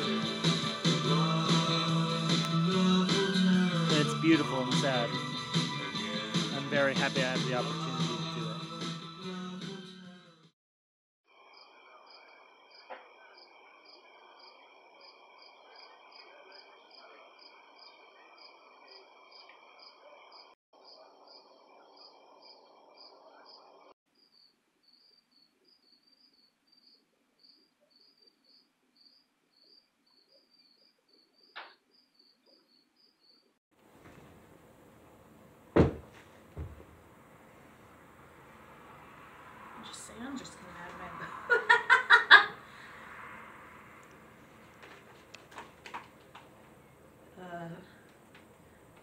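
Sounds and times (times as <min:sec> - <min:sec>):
night insects trilling: 0:11.3 - 0:33.5
insect chirp pulsing: 0:11.3 - 0:33.6.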